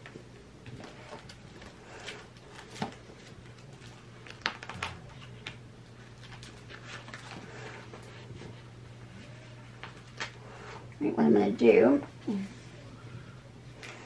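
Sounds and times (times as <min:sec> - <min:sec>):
faint low hum: 0:00.0 - 0:14.0
paper rustling: 0:00.6 - 0:10.4.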